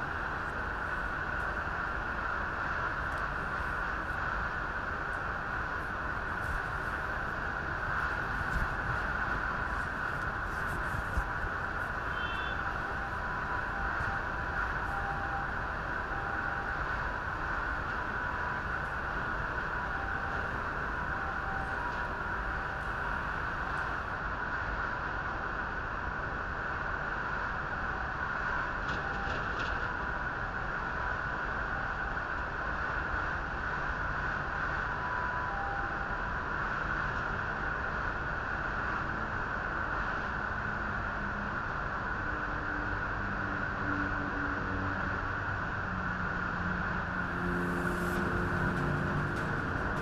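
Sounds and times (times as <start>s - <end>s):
truck engines rumbling: 0.0s - 24.5s, 36.5s - 50.0s
held low tones: 47.1s - 50.0s.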